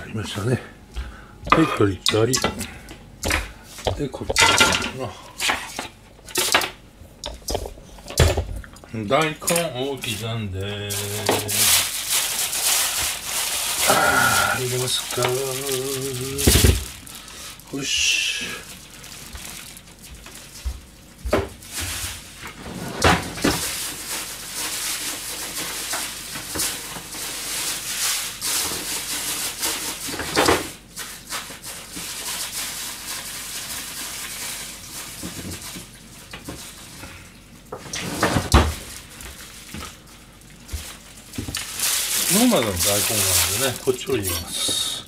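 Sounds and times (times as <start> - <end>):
pots and utensils clattering: 1.5 - 6.7.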